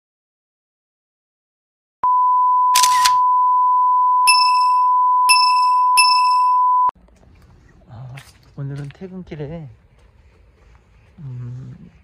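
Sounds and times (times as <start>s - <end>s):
steady test-tone beep: 2.0s - 6.9s
bright bell-like dings: 4.3s - 6.7s.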